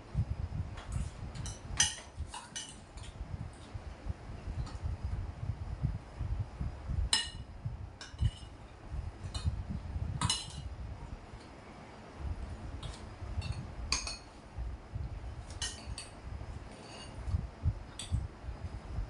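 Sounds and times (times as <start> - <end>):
spoons clinking on plates: 1.4 - 2.9, 12.8 - 14.3, 15.5 - 16.1.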